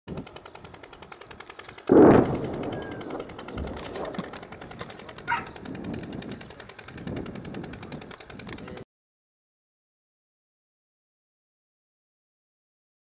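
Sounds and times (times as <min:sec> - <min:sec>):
faint fast ticking: 0:00.1 - 0:08.8
distant explosion: 0:01.9 - 0:05.4.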